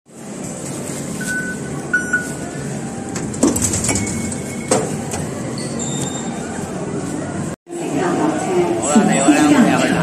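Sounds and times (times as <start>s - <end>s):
short beeps: 1.2s - 2.4s.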